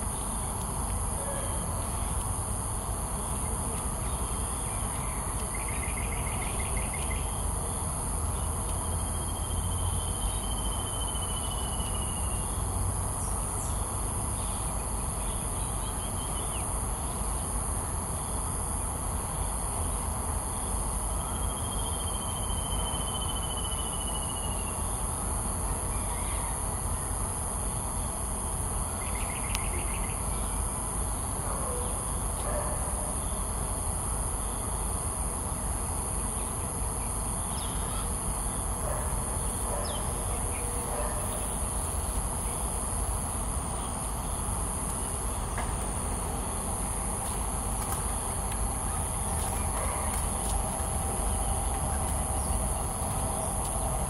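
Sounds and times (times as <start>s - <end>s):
high-pitched hiss: 33.1s - 54.0s.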